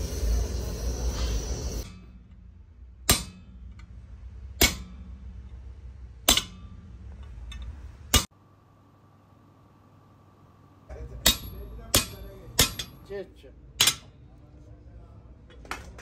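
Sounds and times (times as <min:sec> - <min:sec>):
loud steady noise: 0:00.0 - 0:08.3
hammer striking chisel on copper: 0:03.1 - 0:03.7, 0:04.6 - 0:05.1, 0:06.3 - 0:06.8, 0:11.2 - 0:13.1.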